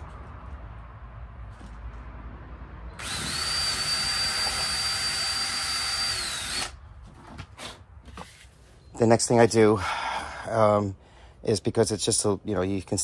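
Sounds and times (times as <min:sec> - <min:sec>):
cordless drill whining: 0:03.0 - 0:06.8.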